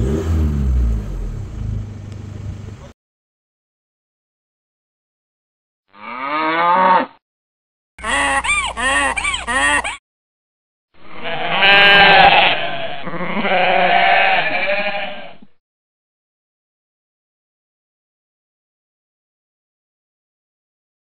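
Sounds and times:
animal bleating: 5.9s - 7.2s, 8.0s - 10.0s, 11.0s - 15.5s.

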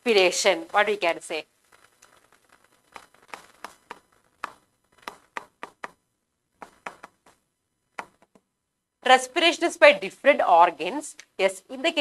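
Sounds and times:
stylus tapping on glass: 3.3s - 6.0s, 6.6s - 7.3s.

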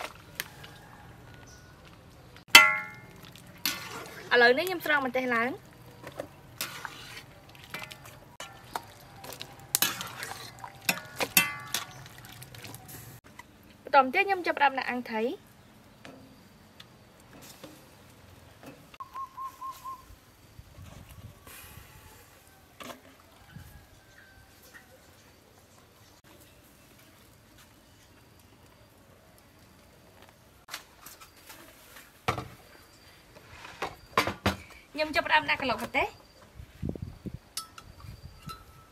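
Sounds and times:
ladle stirring in water: 2.5s - 4.8s, 5.6s - 13.2s
ladle clinking against metal wok: 9.8s - 12.0s
bowls and kitchenware clattering: 9.8s - 12.9s.

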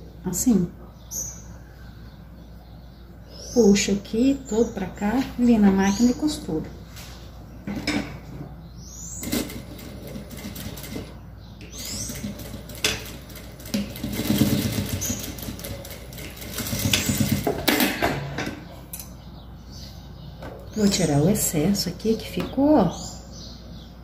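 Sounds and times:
sewing machine stitching: 11.8s - 17.6s.

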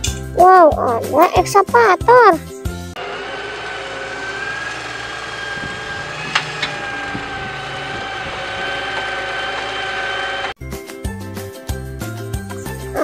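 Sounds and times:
excavator diesel engine running: 3.0s - 10.6s
high whine: 3.0s - 10.6s.

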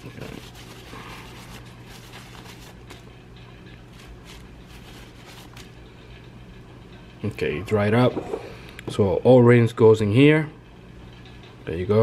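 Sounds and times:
paper towel rustling and rubbing: 0.0s - 3.2s, 3.8s - 6.0s
low steady hum: 0.0s - 12.0s.

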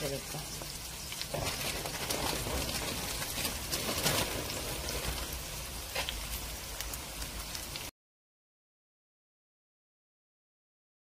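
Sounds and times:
pancake sizzling in oil: 0.0s - 7.9s.

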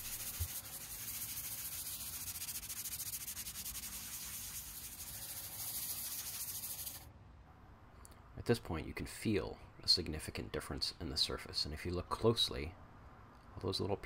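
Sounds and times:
sandpaper rubbing on steel: 0.0s - 7.0s.

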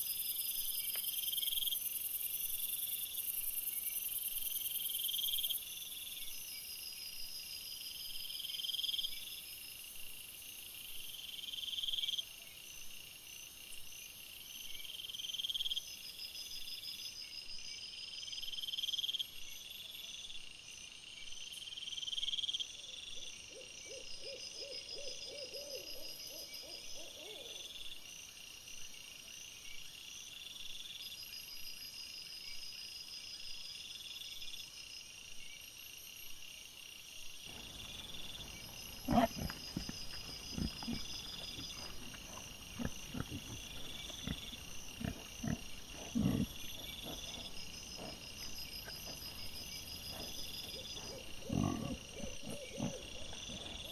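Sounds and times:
night insects chirping: 0.0s - 53.9s
animal low calls: 37.5s - 53.9s
pulsing insect trill: 37.5s - 53.9s.

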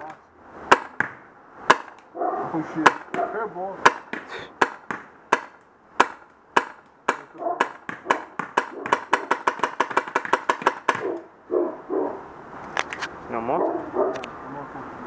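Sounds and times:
paintball marker firing: 2.8s - 11.3s.

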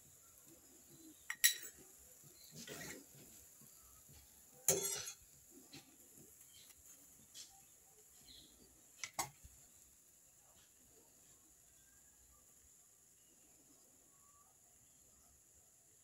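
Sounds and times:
metal skimmer scraping against wok: 0.9s - 3.7s, 4.6s - 7.5s.

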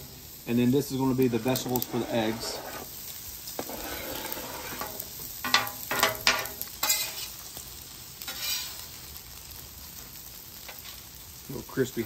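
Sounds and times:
food sizzling on a griddle: 0.0s - 12.0s
metal spatula scraping steel plate: 1.2s - 3.0s, 3.6s - 7.3s, 8.3s - 8.8s.

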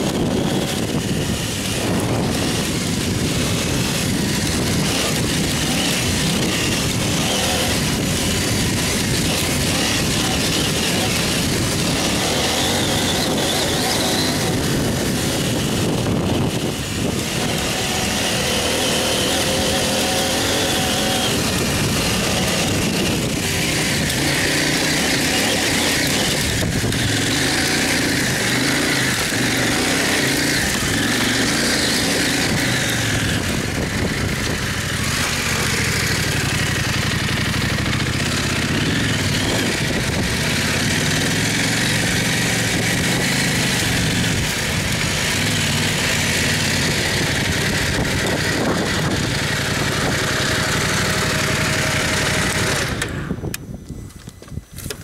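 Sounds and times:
dirt bike engine revving: 0.0s - 53.6s.

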